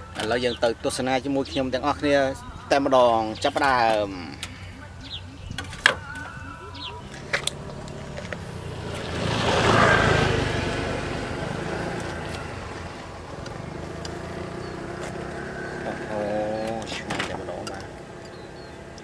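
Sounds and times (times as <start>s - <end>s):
motor vehicle passing close by: 6.7s - 19.0s.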